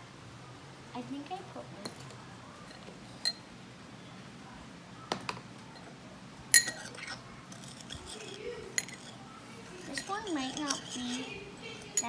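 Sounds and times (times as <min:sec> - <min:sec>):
metal spoon clinking ceramic bowl: 0:02.7 - 0:03.4, 0:06.5 - 0:09.2, 0:09.8 - 0:12.0.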